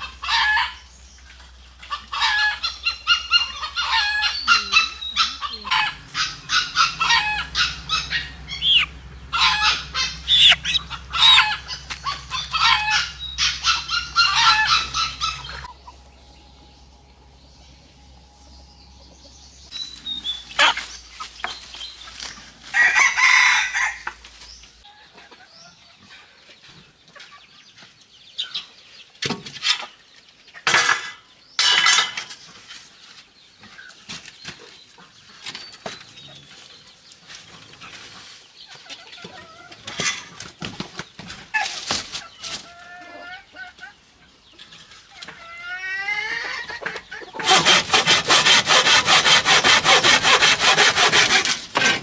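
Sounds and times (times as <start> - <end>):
chickens clucking: 0.0 - 52.0
rooster crowing: 5.6 - 15.7, 22.7 - 24.1.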